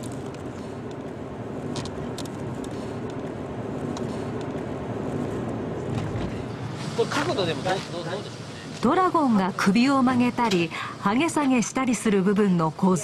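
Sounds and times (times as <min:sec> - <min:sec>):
car engine and tyre noise: 0:00.0 - 0:08.9.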